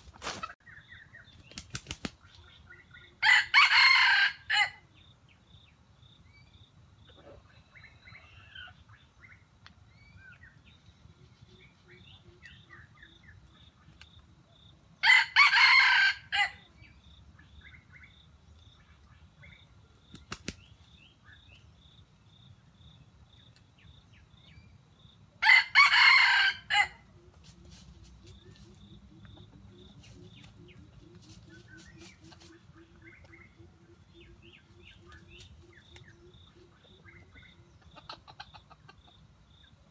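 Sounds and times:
wings fluttering: 0.0 - 0.6, 1.3 - 2.4, 20.1 - 20.8
small birds chirping: 0.0 - 3.2, 4.9 - 14.9, 16.7 - 25.3, 27.2 - 39.9
rooster crowing: 3.2 - 4.8, 15.0 - 16.6, 25.4 - 27.0.

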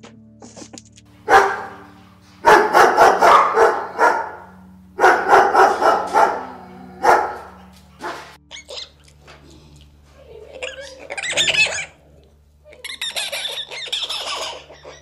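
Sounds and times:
dog barking: 1.3 - 8.4.

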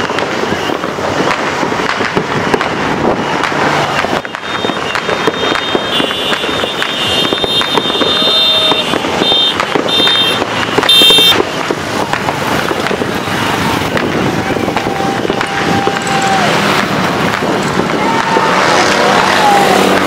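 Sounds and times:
fireworks popping and crackling: 0.0 - 20.0.

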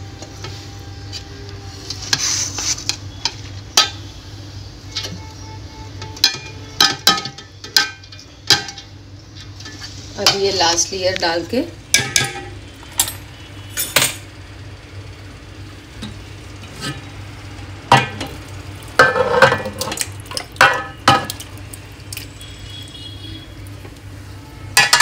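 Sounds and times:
steady low hum: 0.0 - 25.0
pots and spoon clinking and scraping: 6.0 - 10.9, 12.0 - 14.3, 16.6 - 17.1, 17.9 - 18.4, 19.0 - 21.4, 24.8 - 25.0.

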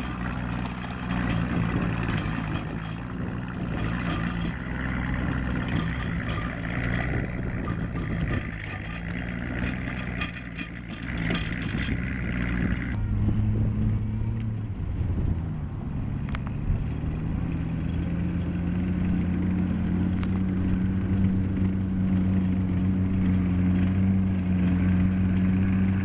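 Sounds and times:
steel tracks clicking and rattling: 0.0 - 13.0
engine running: 0.0 - 26.0.

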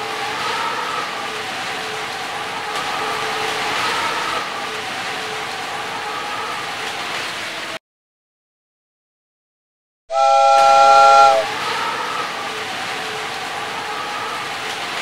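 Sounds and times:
chord whistle blast: 10.1 - 11.5.

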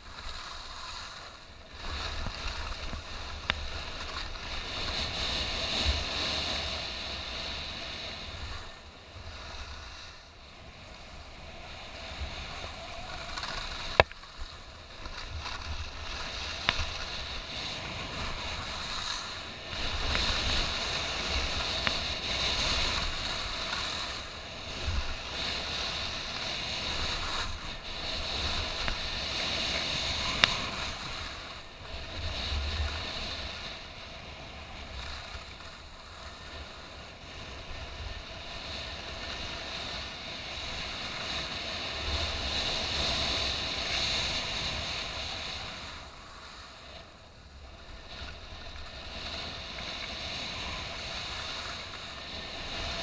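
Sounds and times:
skis hissing over snow: 0.0 - 53.0.

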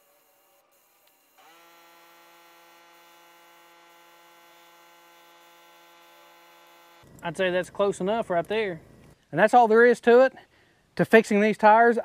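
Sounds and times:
small electric motor humming: 0.0 - 7.1.

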